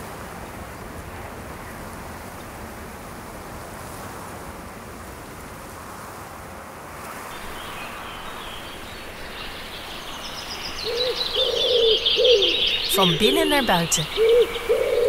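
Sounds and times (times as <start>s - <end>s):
bird calling: 7.3s - 15.0s.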